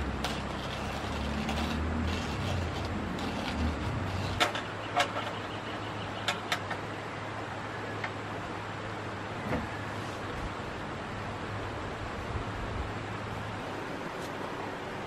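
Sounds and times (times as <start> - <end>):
hand coffee grinder grinding: 0.0 - 4.5.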